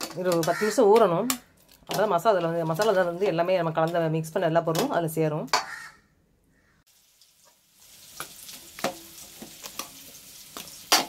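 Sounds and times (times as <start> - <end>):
chicken sizzling in oil: 6.9 - 11.0.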